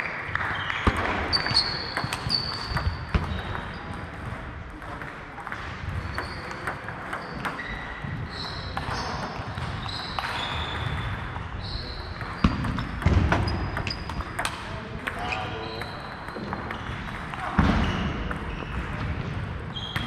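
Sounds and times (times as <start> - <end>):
table tennis balls clicking: 0.3 - 17.6
shoe squeaks on floor: 0.5 - 4.0, 6.0 - 14.3, 15.2 - 19.0, 19.6 - 20.0.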